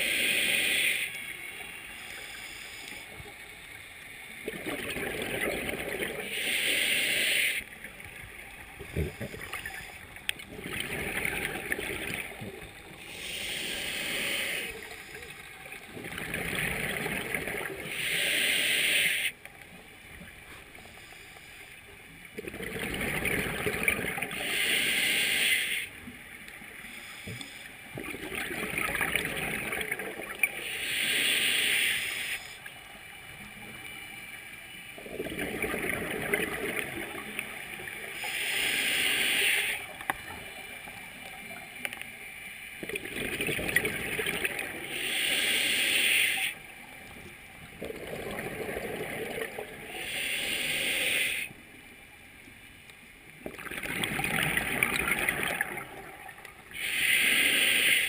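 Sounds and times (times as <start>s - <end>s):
regulator inhale hiss: 0.0s - 3.4s, 6.2s - 7.7s, 13.0s - 15.3s, 17.8s - 19.4s, 24.3s - 26.1s, 26.7s - 27.8s, 30.6s - 32.8s, 38.1s - 40.1s, 44.8s - 46.8s, 49.8s - 51.6s, 56.7s - 58.0s
exhaled bubbles underwater: 4.3s - 6.3s, 8.6s - 13.4s, 14.8s - 18.0s, 22.3s - 24.6s, 27.9s - 30.6s, 35.0s - 38.6s, 42.8s - 45.0s, 47.0s - 50.3s, 53.4s - 57.0s.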